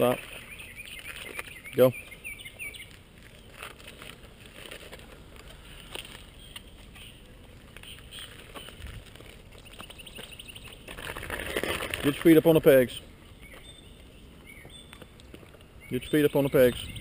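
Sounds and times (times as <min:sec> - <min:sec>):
soft scuffs and clicks: 0:00.0 - 0:12.8
faint outdoor background noise: 0:00.0 - 0:17.0.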